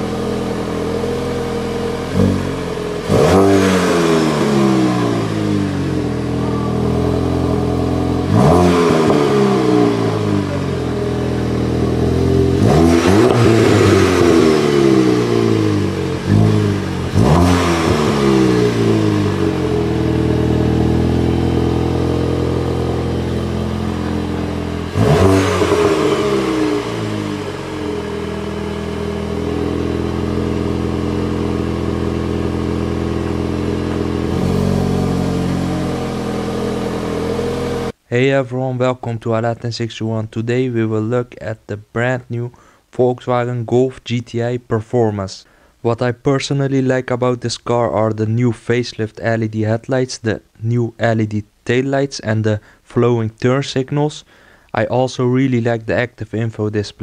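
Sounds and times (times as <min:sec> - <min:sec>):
car engine revving: 0:00.0 - 0:38.0.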